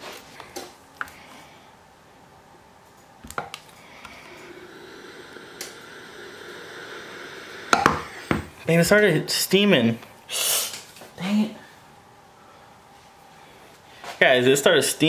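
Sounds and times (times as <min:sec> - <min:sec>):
steam iron hissing: 0:03.8 - 0:08.8.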